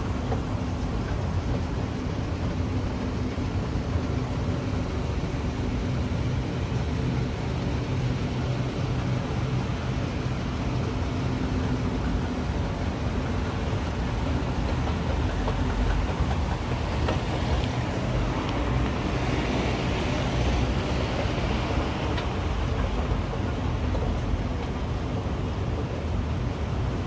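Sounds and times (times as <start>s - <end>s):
escalator running: 0.0s - 27.0s
faint clicks: 13.2s - 19.0s.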